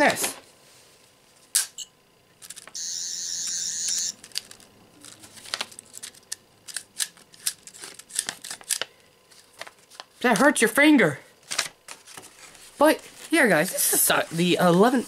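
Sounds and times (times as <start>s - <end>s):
electronic warbling whine: 2.8s - 4.3s.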